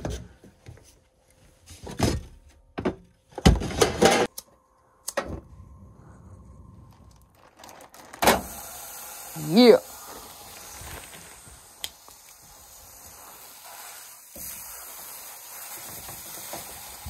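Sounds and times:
gas flame hissing: 0:08.2 - 0:17.0.

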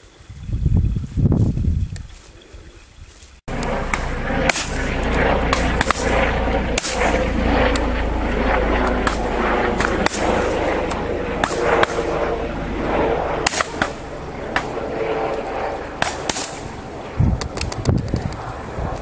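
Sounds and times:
wind rumble on microphone: 0:00.0 - 0:19.0
shotgun shots: 0:03.8 - 0:07.8, 0:09.0 - 0:10.8, 0:11.4 - 0:12.1, 0:13.4 - 0:14.8, 0:16.0 - 0:16.7.

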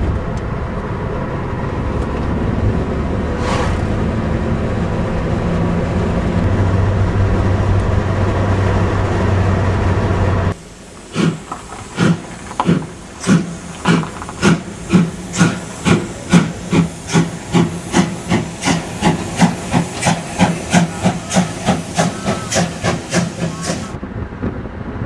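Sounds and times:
steam locomotive exhaust chuffing: 0:10.4 - 0:24.0
steam hissing: 0:10.5 - 0:24.0.

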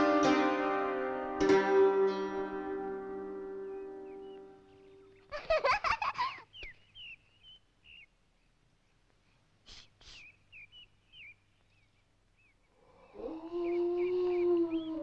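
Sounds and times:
small birds chirping: 0:03.2 - 0:15.0
short breathy puffs: 0:09.2 - 0:10.4.

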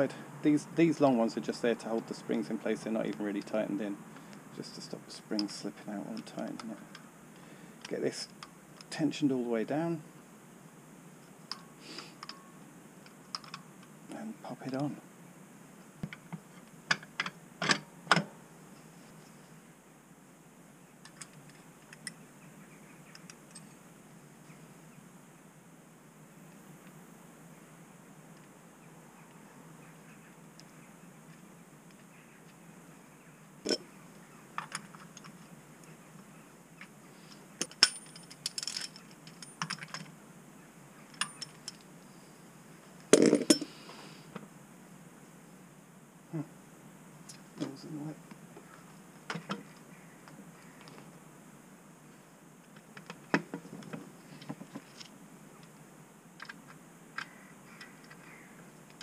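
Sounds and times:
metal tools clinking: 0:37.6 - 0:40.0, 0:41.1 - 0:41.8, 0:43.1 - 0:43.8.

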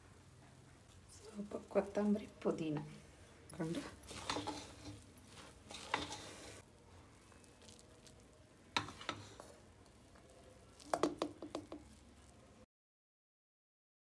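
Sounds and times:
spoon knocking on metal: 0:10.9 - 0:11.9.

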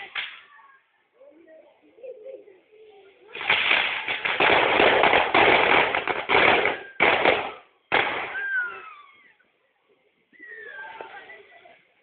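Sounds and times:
firecrackers crackling: 0:00.0 - 0:00.6, 0:03.2 - 0:09.0.

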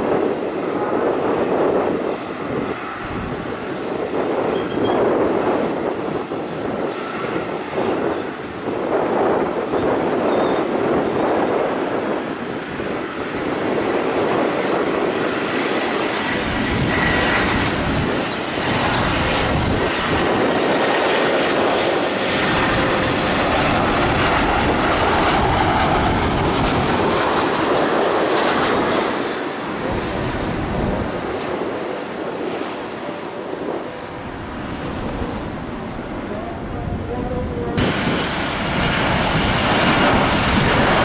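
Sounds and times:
jet engines running: 0:00.0 - 0:41.0
faint high engine whine: 0:09.8 - 0:41.0.

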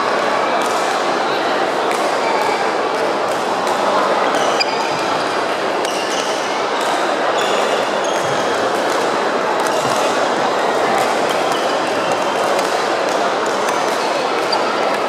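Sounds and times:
din of many voices: 0:00.0 - 0:15.0
shoes squeaking on wooden court: 0:04.3 - 0:05.2, 0:14.4 - 0:14.8.

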